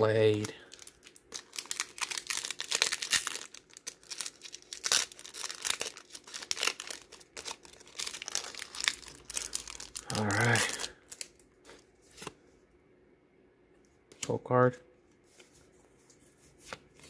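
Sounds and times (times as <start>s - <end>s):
plastic wrapper crinkling and tearing: 0.0s - 12.3s.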